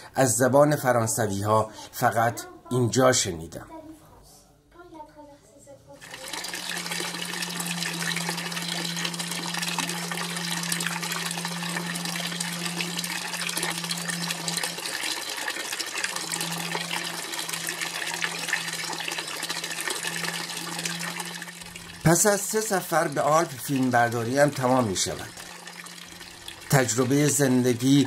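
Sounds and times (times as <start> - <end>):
low hum: 6.0 - 28.0.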